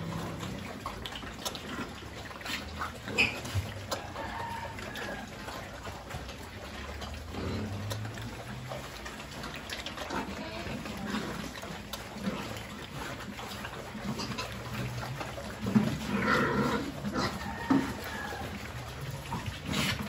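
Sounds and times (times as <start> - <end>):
pigs slurping and chomping: 0.0 - 20.0
pig call: 16.0 - 20.0.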